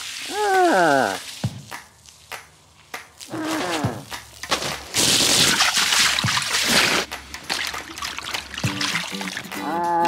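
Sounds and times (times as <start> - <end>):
hose spraying water into pool: 0.0 - 2.3, 4.5 - 7.1.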